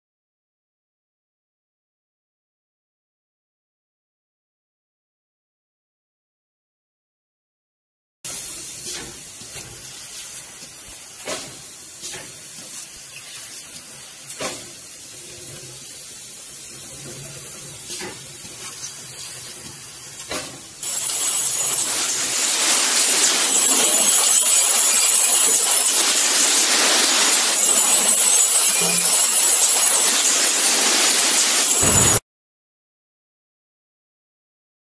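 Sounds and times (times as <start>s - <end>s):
loud steady hiss: 8.3s - 32.2s.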